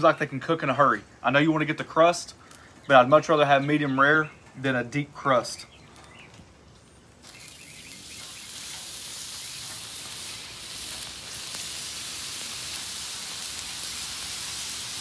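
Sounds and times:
steaks sizzling on a griddle: 7.2 - 15.0.

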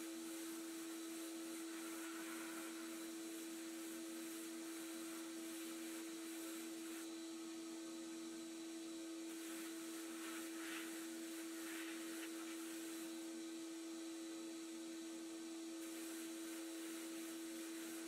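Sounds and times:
air blast hiss: 0.0 - 7.1, 9.3 - 13.3, 15.8 - 18.0
droning hum: 0.0 - 18.0.

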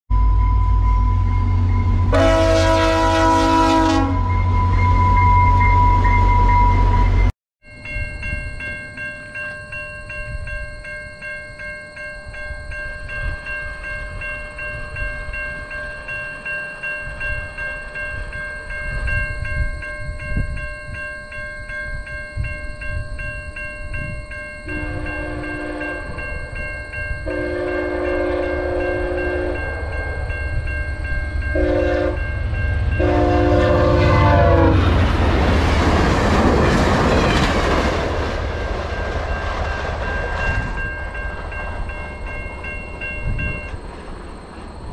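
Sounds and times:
train horn blasts: 2.0 - 4.6, 24.7 - 26.4, 27.2 - 30.2, 31.5 - 32.3, 32.9 - 35.0
level crossing bell ringing: 3.8 - 34.8, 38.9 - 43.8
train wheels rushing over crossing: 31.4 - 44.9.

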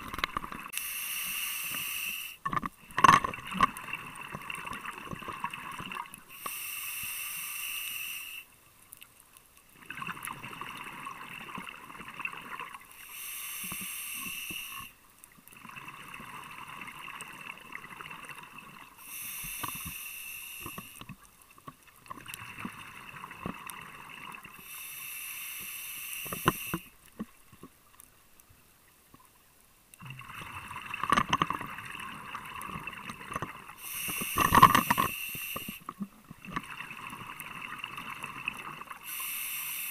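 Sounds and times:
diver inhaling through regulator: 0.7 - 2.4, 6.3 - 8.5, 13.0 - 15.0, 19.0 - 21.0, 24.6 - 26.9, 33.8 - 35.9, 39.0 - 39.9
exhaled bubbles gurgling: 2.4 - 6.3, 9.7 - 13.0, 14.8 - 19.1, 21.9 - 24.6, 30.0 - 39.2.

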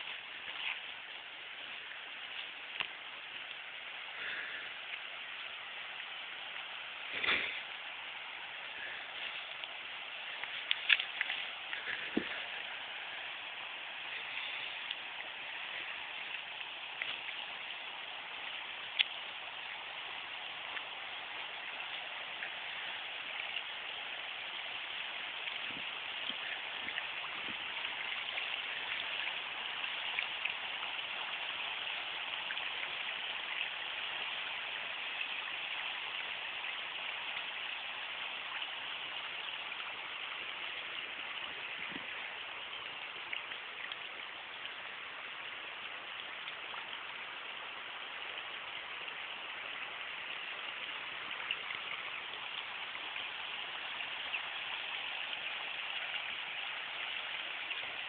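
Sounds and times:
river water rushing: 0.0 - 58.0
faint ticks: 2.3 - 3.6, 9.2 - 12.6, 14.3 - 15.0, 18.9 - 19.2.

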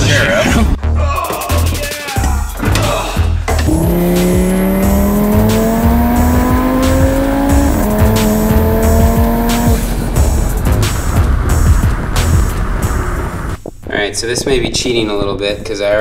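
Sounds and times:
music with heavy bass beat: 0.0 - 13.6
car engine accelerating: 3.5 - 13.6.

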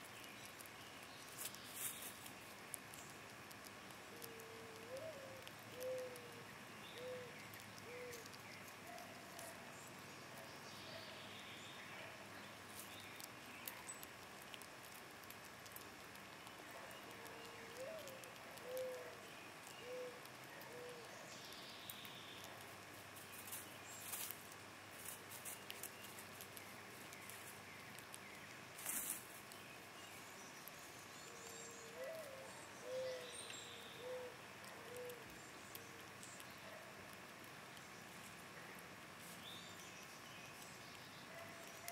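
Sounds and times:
faint outdoor hiss: 0.0 - 41.9
squirrel nibbling seeds: 0.0 - 41.9
bird's low call: 31.5 - 35.2.

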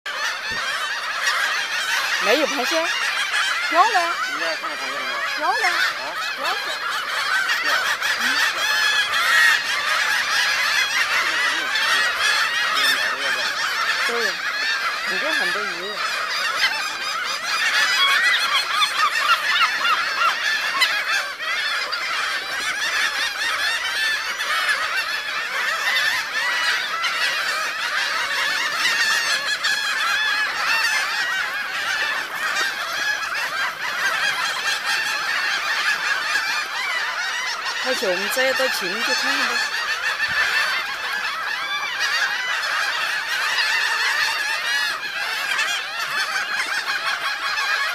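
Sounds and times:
gulls calling: 0.1 - 47.9.

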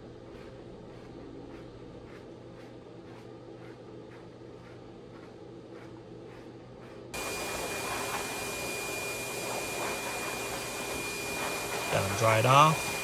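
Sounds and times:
brush strokes: 0.0 - 13.0
pet dryer blowing air: 7.2 - 13.0.

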